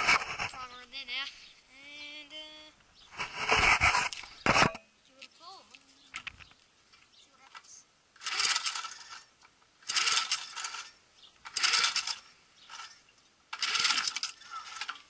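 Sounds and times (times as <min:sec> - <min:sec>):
recoil starter cord whirring: 0:08.2 - 0:15.0.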